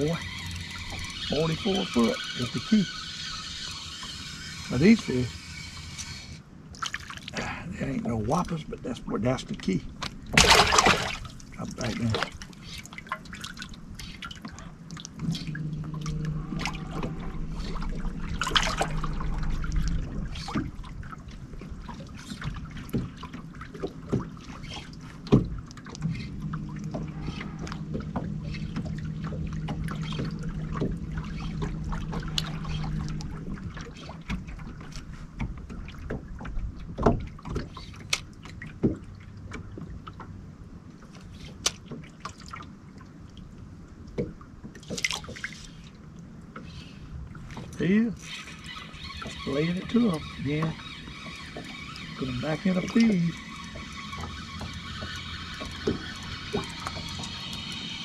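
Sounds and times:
electric trolling motor humming: 0:00.0 - 0:06.7, 0:09.3 - 0:35.8, 0:46.7 - 0:58.0.

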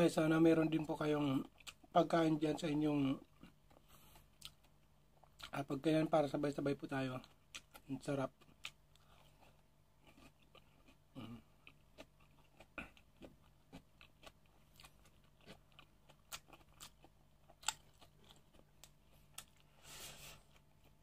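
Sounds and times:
chewing crunches: 0:07.2 - 0:19.8.

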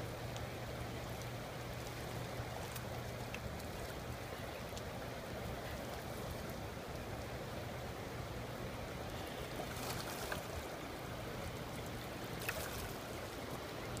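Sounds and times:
water lapping against rocks: 0:08.8 - 0:14.0
fish splashing at surface: 0:12.4 - 0:13.1.

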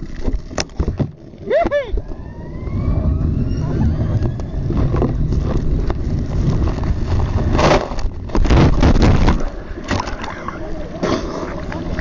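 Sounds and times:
wind rushing over microphone: 0:01.9 - 0:10.0.

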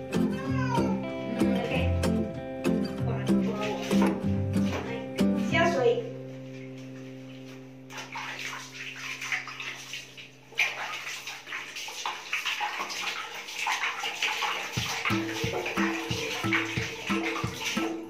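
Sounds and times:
background music: 0:00.0 - 0:09.5, 0:14.6 - 0:18.0
water splashing in a basin: 0:03.2 - 0:05.5, 0:06.4 - 0:18.0.

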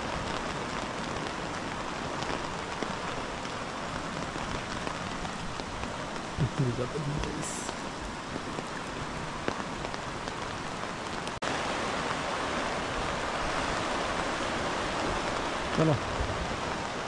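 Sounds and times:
rain: 0:00.0 - 0:17.0
river rapids over rocks: 0:08.6 - 0:17.0.

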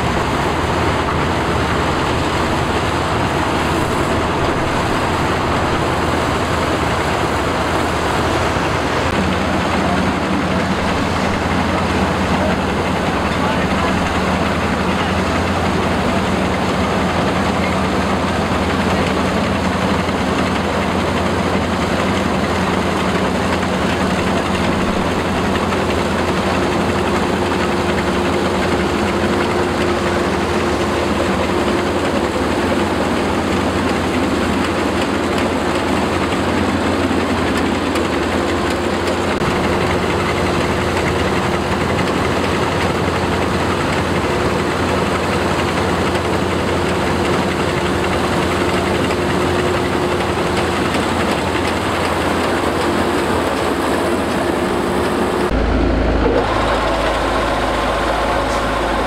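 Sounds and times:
combine harvester running: 0:00.0 - 0:59.0.

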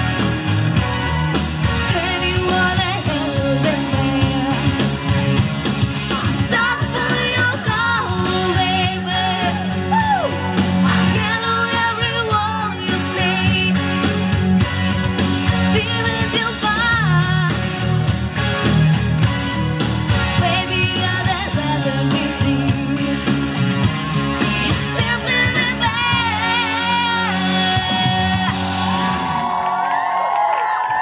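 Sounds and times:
amplified band accompaniment: 0:00.0 - 0:31.0
woman singing into microphone: 0:01.9 - 0:05.0, 0:06.3 - 0:13.9, 0:15.7 - 0:17.8, 0:20.3 - 0:23.4, 0:24.7 - 0:28.8.

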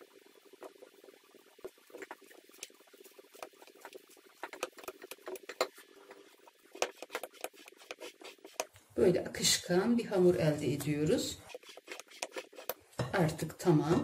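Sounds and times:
spatula folding batter in glass bowl: 0:01.6 - 0:08.8, 0:10.8 - 0:12.8.

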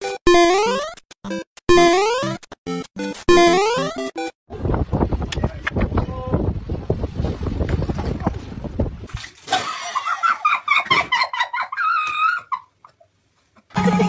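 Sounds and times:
girls squealing and laughing: 0:10.3 - 0:12.7.

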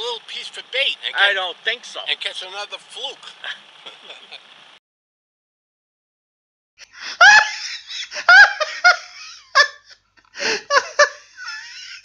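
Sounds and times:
person laughing loudly: 0:03.4 - 0:04.4, 0:06.8 - 0:12.0.

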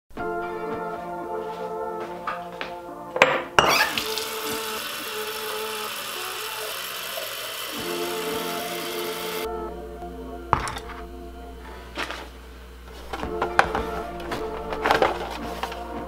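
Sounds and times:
music playing: 0:00.1 - 0:16.0.

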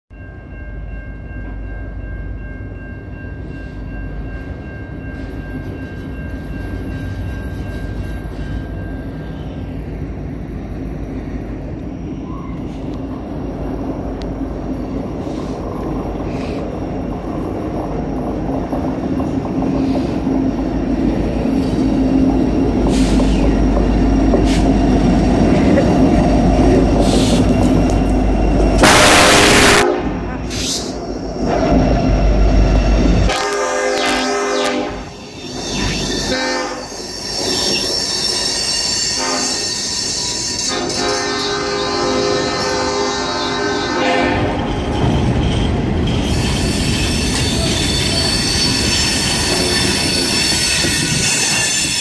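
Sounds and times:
steady high tones: 0:00.1 - 0:29.0, 0:29.7 - 0:40.8
locomotive rumble: 0:03.8 - 0:52.0.

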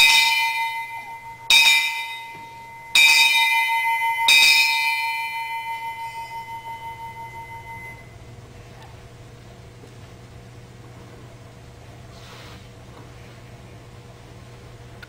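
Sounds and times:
ship's bell ringing: 0:00.0 - 0:08.3.

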